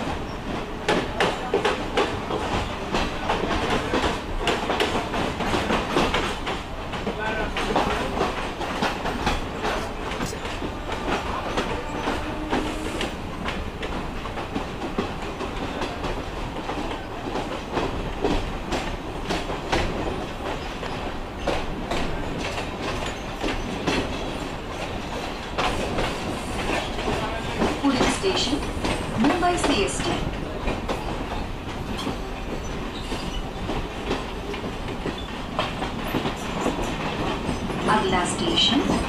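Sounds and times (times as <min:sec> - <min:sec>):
electric train rumbling: 0:00.0 - 0:39.0.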